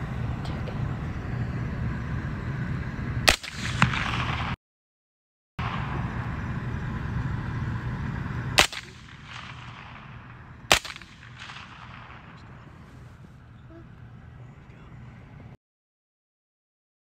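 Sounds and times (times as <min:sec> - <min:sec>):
steady background hiss: 0:00.0 - 0:04.6, 0:05.6 - 0:15.6
rifle shots: 0:03.2 - 0:04.6, 0:05.6 - 0:06.7, 0:08.4 - 0:12.8.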